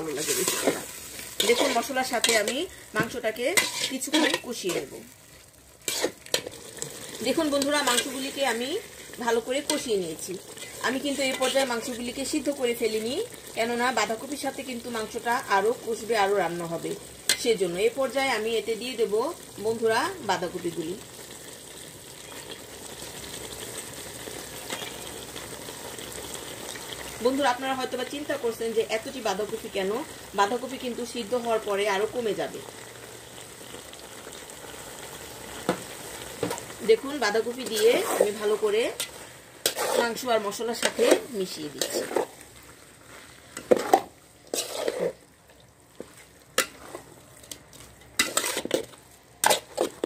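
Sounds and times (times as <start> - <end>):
food sizzling in a pot: 0.0 - 50.0
spoon scraping metal pot: 0.2 - 4.9, 5.8 - 6.5, 37.6 - 42.4, 43.6 - 45.2, 48.2 - 50.0.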